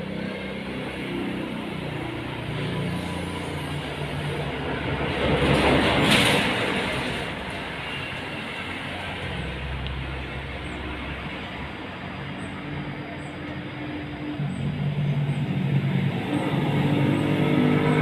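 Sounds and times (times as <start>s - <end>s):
motor vehicle passing: 9.2s - 18.0s.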